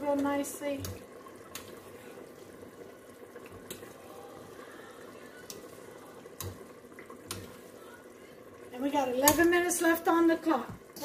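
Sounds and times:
pasta boiling in water: 0.0s - 11.0s
spoon clicking against pan: 6.4s - 6.6s, 9.2s - 9.5s.

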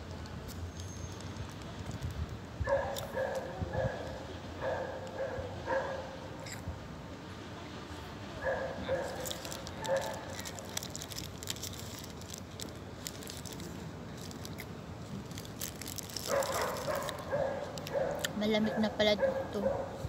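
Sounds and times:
dog barking: 2.7s - 4.0s, 4.6s - 6.1s, 8.4s - 9.2s, 9.8s - 10.2s, 16.3s - 20.0s
paper wrapper crinkling: 9.0s - 18.2s.

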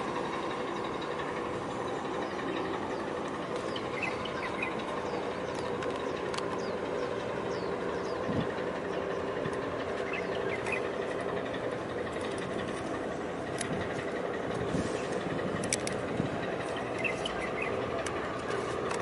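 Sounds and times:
ship machinery humming: 0.0s - 19.0s
small birds chirping: 1.9s - 11.1s, 16.6s - 18.6s.

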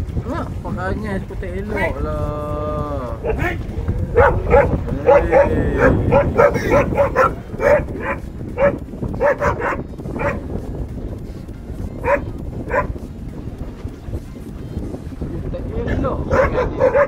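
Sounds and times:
dog barking: 1.7s - 2.0s, 3.2s - 10.5s, 12.0s - 13.0s, 16.3s - 17.0s.

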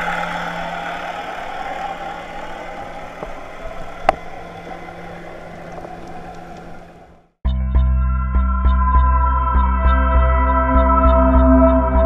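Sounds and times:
motorboat engine heard underwater: 0.0s - 7.4s.

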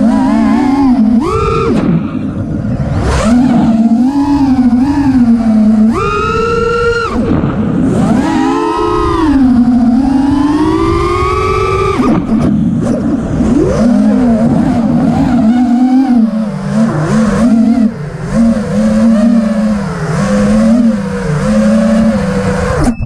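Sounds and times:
drone motors whining: 0.0s - 23.0s.

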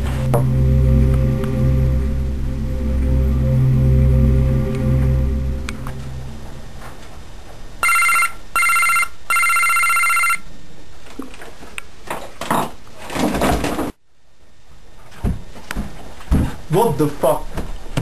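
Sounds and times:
electric doorbell ringing: 7.8s - 10.4s.

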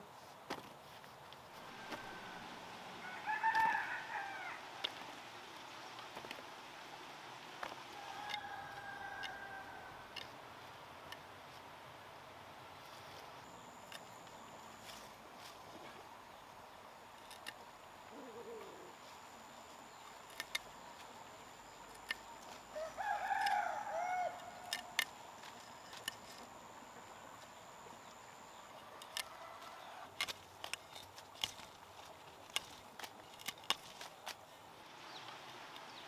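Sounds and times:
outdoor hiss: 0.0s - 30.7s, 34.0s - 36.0s
rooster crowing: 1.7s - 4.9s, 8.0s - 10.1s, 22.7s - 25.0s, 29.2s - 30.1s
machete cutting stems: 24.3s - 26.5s.

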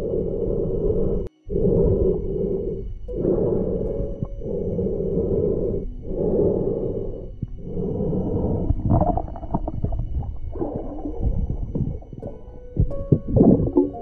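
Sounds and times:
muffled underwater rushing: 0.0s - 14.0s
underwater clicks and knocks: 8.9s - 14.0s.

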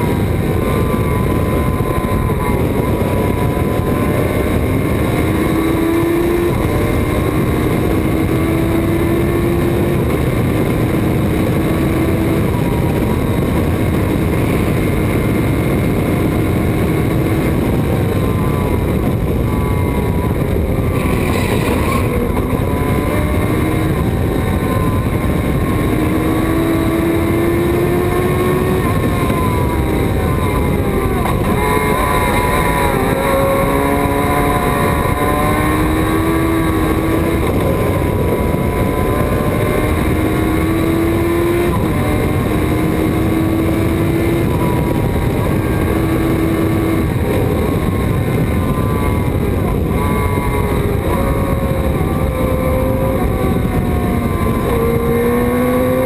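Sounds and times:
wind and road noise: 0.0s - 56.0s
race car engine revving: 16.2s - 56.0s.

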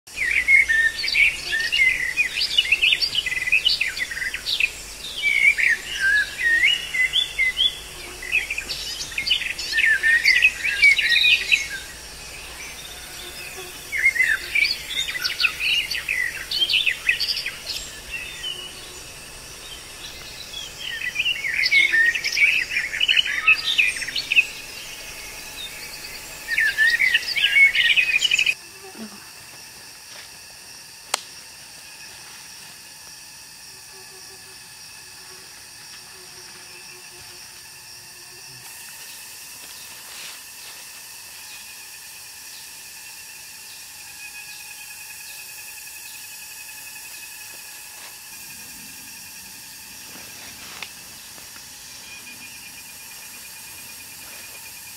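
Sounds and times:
birds singing and chirping: 0.1s - 28.6s.

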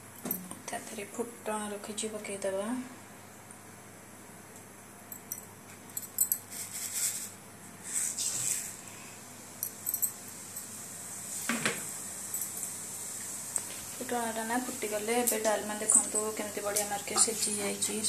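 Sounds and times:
spices sizzling in hot oil: 6.5s - 18.0s
metal utensils clinking on pan: 15.2s - 17.7s.

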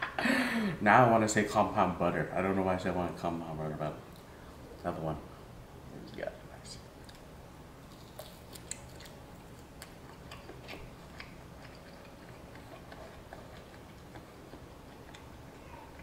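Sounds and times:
person chewing with wet smacks: 7.0s - 16.0s.

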